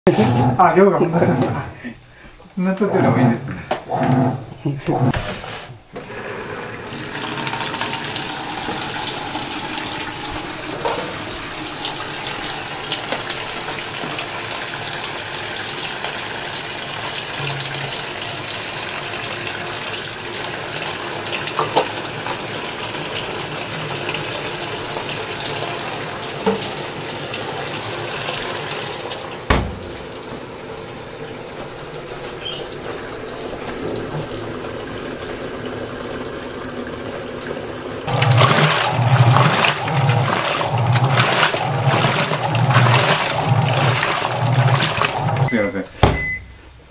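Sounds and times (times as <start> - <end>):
water filling washing machine: 0.1 - 1.9, 2.8 - 46.5
washing machine thump: 29.4 - 30.1, 38.4 - 46.5.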